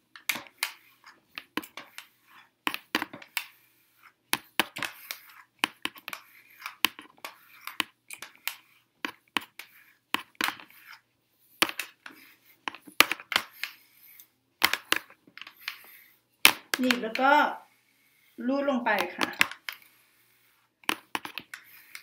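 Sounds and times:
brush and comb through hair: 0.2s - 22.0s
scratchy rustling: 0.3s - 16.2s.

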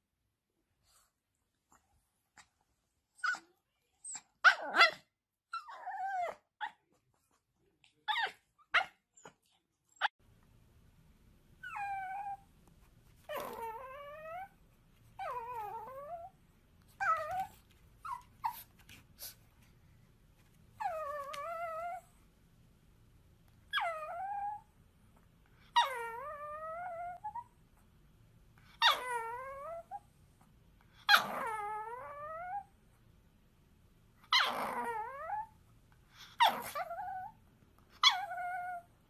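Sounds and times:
small dogs yipping and growling: 1.7s - 10.2s, 11.6s - 12.5s, 13.2s - 19.4s, 20.8s - 22.3s, 23.6s - 24.8s, 25.6s - 27.6s, 28.6s - 30.2s, 30.9s - 32.8s, 34.2s - 39.0s
small dog whining: 3.1s - 6.9s, 7.9s - 10.1s, 11.6s - 12.5s, 13.2s - 14.6s, 15.2s - 18.7s, 20.8s - 22.2s, 23.7s - 24.7s, 25.7s - 27.5s, 28.7s - 30.1s, 31.0s - 32.8s, 34.2s - 35.6s, 36.2s - 39.0s.

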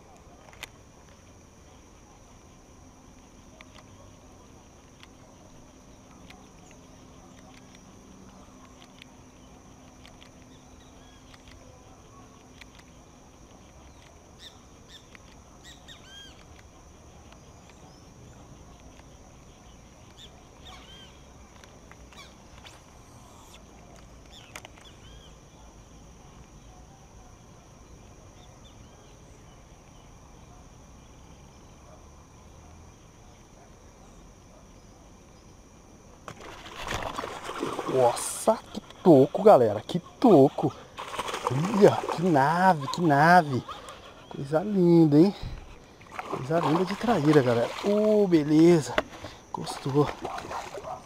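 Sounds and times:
high insect drone: 0.0s - 51.0s
birds chirping: 17.4s - 25.7s, 37.6s - 51.0s.

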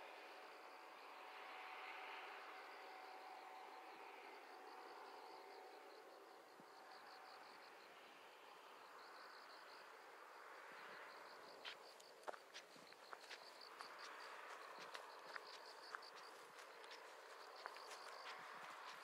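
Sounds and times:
insects chirring: 1.8s - 19.0s
footsteps on dry leaves: 12.5s - 19.0s.

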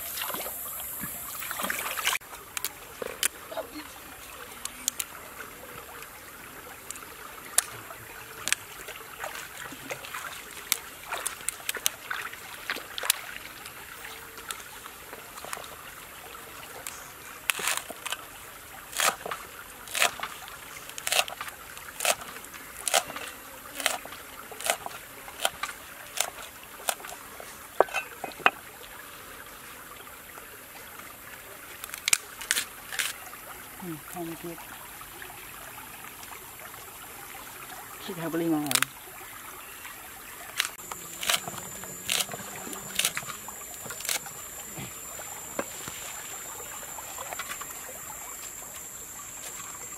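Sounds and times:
running water trickling: 0.0s - 49.9s.

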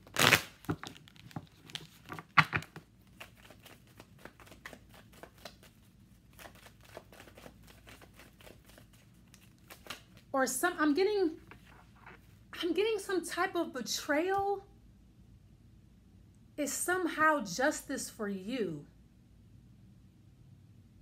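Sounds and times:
cards riffle shuffling: 0.0s - 10.3s.

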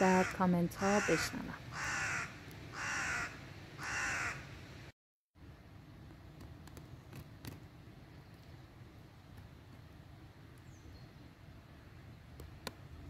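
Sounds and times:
crow cawing: 0.0s - 4.5s.

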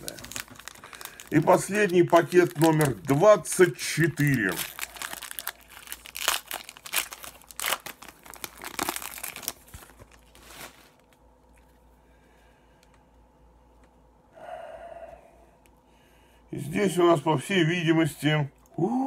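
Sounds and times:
foil wrapper crinkling and tearing: 0.0s - 11.2s.

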